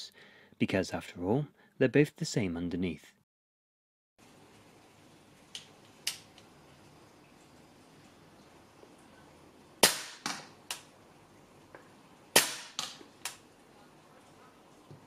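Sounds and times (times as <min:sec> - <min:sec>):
airsoft rifle shots: 0:09.8 - 0:10.8, 0:12.3 - 0:13.4.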